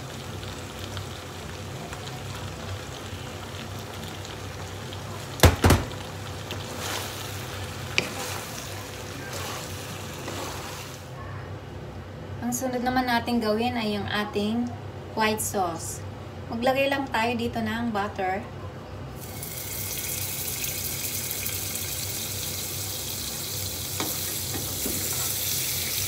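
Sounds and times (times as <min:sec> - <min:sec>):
food sizzling in a frying pan: 0:00.0 - 0:11.1, 0:19.2 - 0:26.0
wooden spatula scraping a pan: 0:06.7 - 0:11.0.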